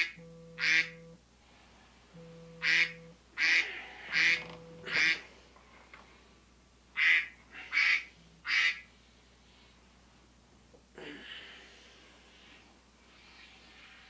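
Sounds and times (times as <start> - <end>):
quack-like bursts: 0.0 - 1.0, 2.6 - 5.2, 7.0 - 8.9
low steady tone: 0.1 - 1.3, 2.0 - 3.3, 4.2 - 5.0.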